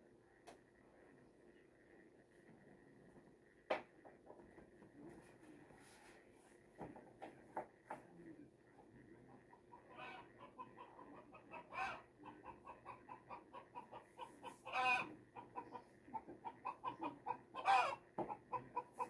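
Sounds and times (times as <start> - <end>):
chickens clucking: 9.4 - 19.0
chicken calls: 9.7 - 19.0.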